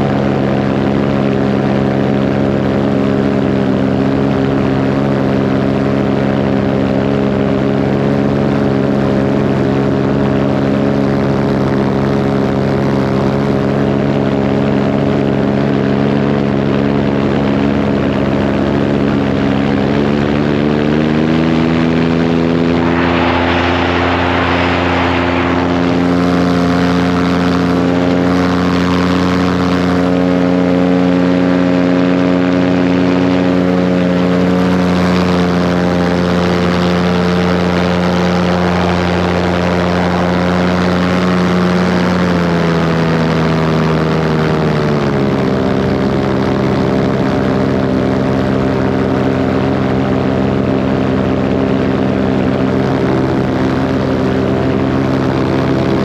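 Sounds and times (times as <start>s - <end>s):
paramotor engine and propeller: 0.0s - 56.0s
rush of hissing noise: 22.6s - 27.4s.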